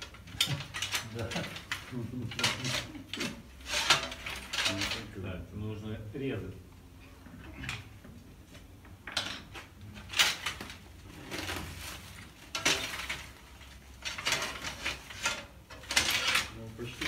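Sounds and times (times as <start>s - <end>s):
metal frame parts clinking: 0.0s - 5.2s, 9.0s - 17.0s
plastic bag rustling: 10.3s - 15.3s.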